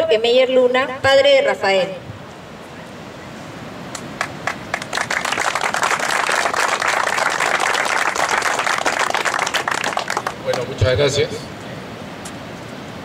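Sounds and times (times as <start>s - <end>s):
crowd applauding: 4.2s - 10.9s.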